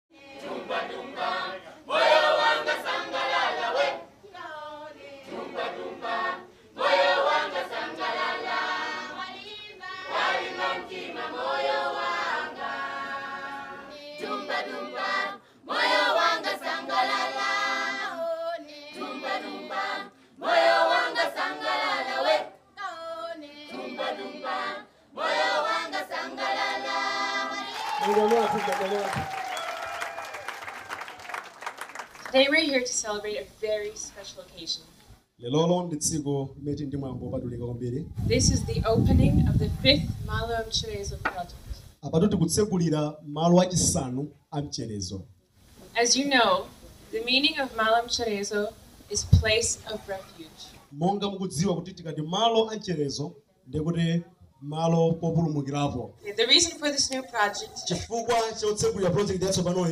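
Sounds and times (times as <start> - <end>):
choir of children singing: 0.1 - 27.8.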